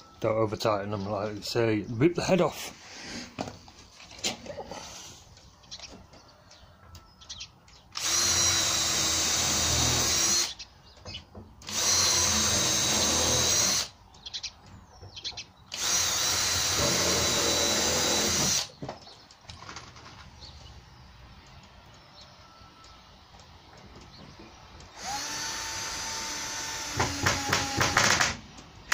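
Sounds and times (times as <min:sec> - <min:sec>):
cordless drill drilling into wood: 0:08.0 - 0:10.6, 0:11.6 - 0:13.9, 0:15.7 - 0:18.8, 0:24.9 - 0:28.4.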